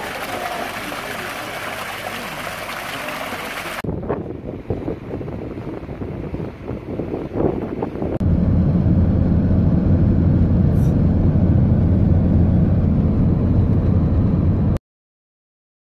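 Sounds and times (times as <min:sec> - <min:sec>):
car road and engine rumble: 0:03.8 - 0:14.8.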